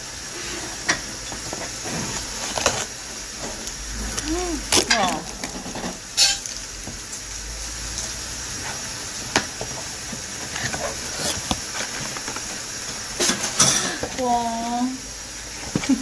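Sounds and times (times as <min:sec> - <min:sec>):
cardboard rustling and crinkling: 0:01.4 - 0:05.8, 0:10.4 - 0:13.0
packing tape peeling: 0:03.6 - 0:05.9.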